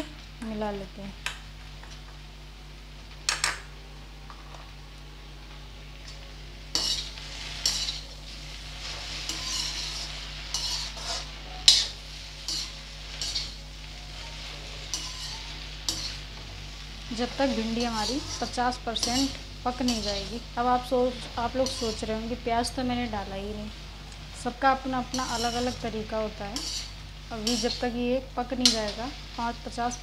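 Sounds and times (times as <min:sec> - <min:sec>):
okra sizzling: 0:00.0 - 0:30.0
metal spoon scraping cookware: 0:06.8 - 0:08.0, 0:09.2 - 0:13.6, 0:14.9 - 0:16.2, 0:26.6 - 0:27.8.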